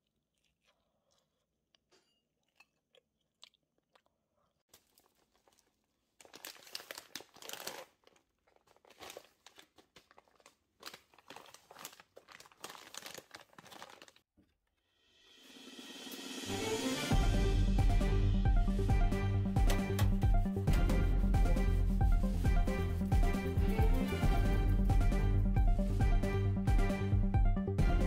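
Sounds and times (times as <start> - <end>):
plastic packets crinkling: 4.7 - 14.3.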